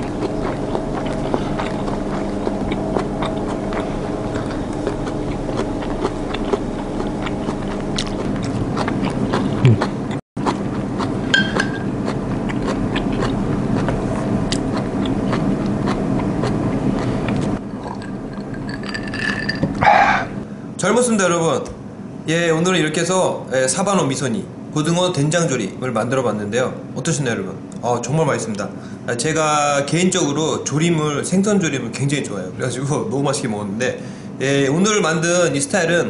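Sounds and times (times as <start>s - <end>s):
man chewing food: 0.0s - 20.4s
steady low hum: 0.0s - 36.0s.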